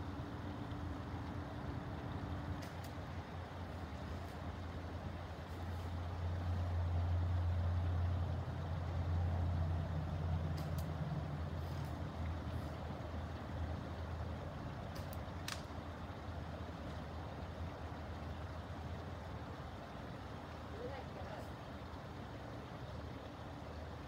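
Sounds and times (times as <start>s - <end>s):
vehicle engine rumble: 0.0s - 24.0s
faint sharp clicks: 2.6s - 3.0s, 10.5s - 11.0s, 14.8s - 15.8s.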